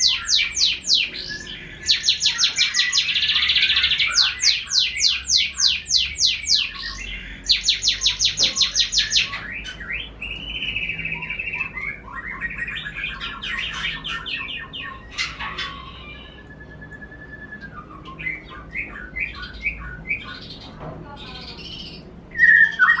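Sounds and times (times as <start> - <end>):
buzzy bird trill: 0.0 - 23.0
songbird singing: 0.0 - 23.0.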